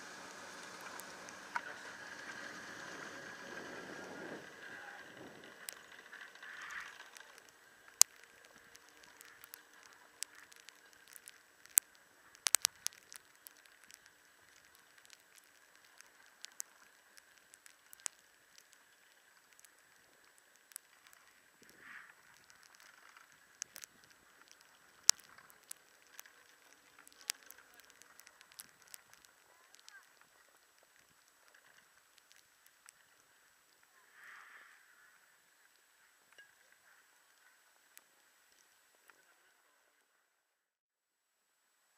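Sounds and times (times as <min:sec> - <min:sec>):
skis sliding on snow: 0:00.0 - 0:07.5, 0:20.9 - 0:32.2
faint steady hum: 0:00.0 - 0:41.9.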